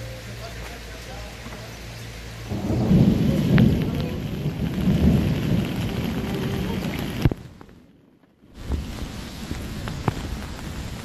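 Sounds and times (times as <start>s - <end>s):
heavy rain pouring: 0.0s - 11.0s
loud low rumble: 2.4s - 8.1s.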